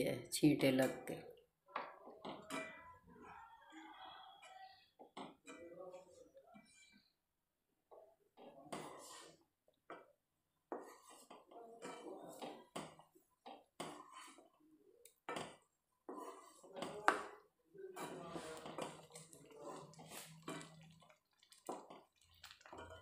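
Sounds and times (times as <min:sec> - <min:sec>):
wooden spatula scraping metal pan: 0:02.0 - 0:03.4, 0:04.2 - 0:07.2, 0:08.4 - 0:09.4, 0:10.7 - 0:14.6, 0:15.3 - 0:23.0
liquid sloshing: 0:18.1 - 0:23.0.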